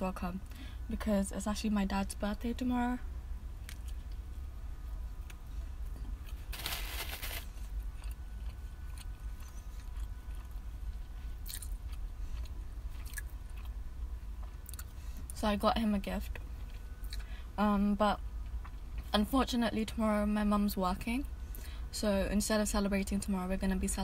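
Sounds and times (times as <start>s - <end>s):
person chewing: 5.2s - 13.8s, 14.4s - 15.0s, 16.6s - 17.3s
crunching bite of sandwich: 6.1s - 13.7s.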